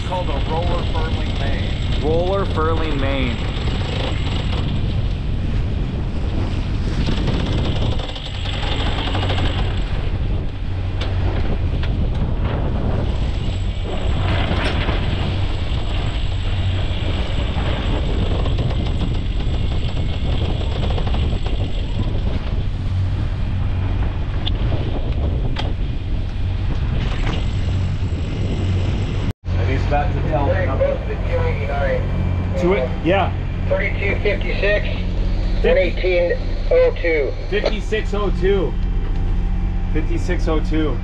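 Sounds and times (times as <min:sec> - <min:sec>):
wind noise on microphone: 0:00.0 - 0:41.0
electric winch running: 0:00.2 - 0:05.0, 0:07.1 - 0:10.1
ratchet-like clicking: 0:07.0 - 0:09.8.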